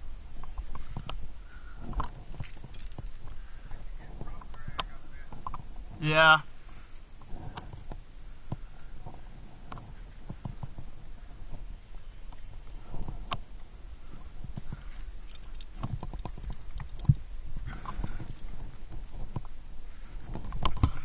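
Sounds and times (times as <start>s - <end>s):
carabiners clicking: 1.8s - 3.4s, 14.7s - 19.0s.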